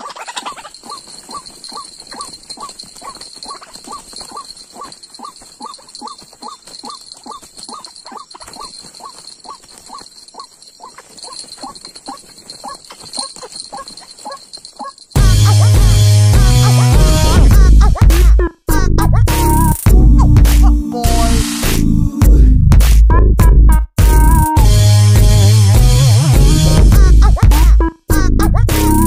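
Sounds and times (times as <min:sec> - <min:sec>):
waterhen calling: 0:00.0 - 0:15.8.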